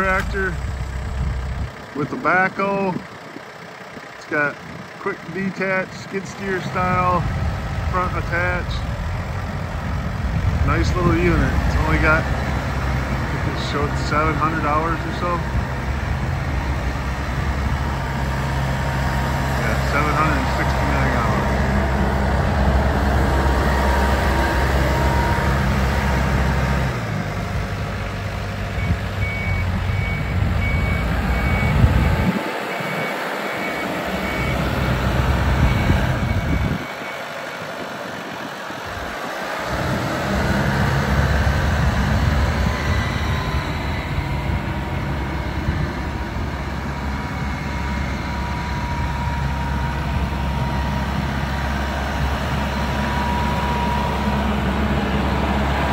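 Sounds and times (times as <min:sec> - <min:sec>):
tractor diesel engine running: 0:00.0 - 0:55.9
reversing beeper: 0:10.7 - 0:27.3, 0:28.1 - 0:55.9.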